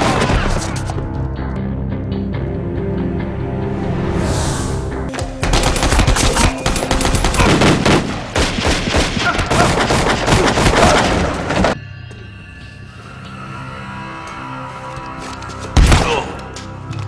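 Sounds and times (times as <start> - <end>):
rapid automatic gunfire: 5.5 - 11.7.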